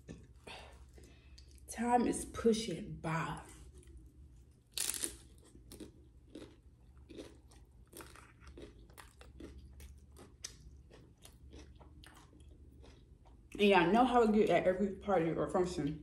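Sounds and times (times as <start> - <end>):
chewing crunchy food: 3.5 - 13.6.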